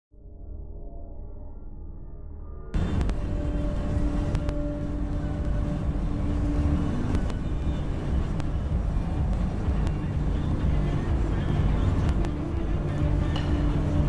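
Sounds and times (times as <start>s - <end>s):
held hum: 0.2s - 14.0s
car road noise inside cabin: 2.8s - 14.0s.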